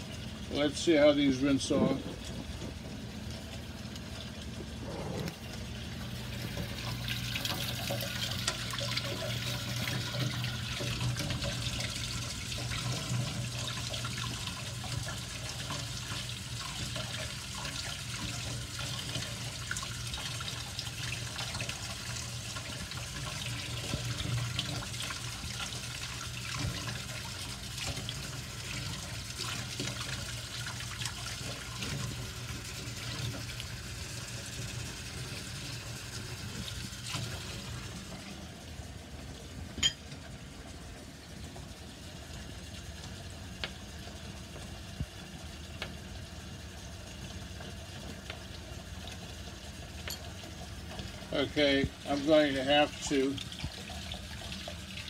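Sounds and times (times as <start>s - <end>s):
faucet running into sink: 0.0s - 55.0s
low steady hum: 0.0s - 55.0s.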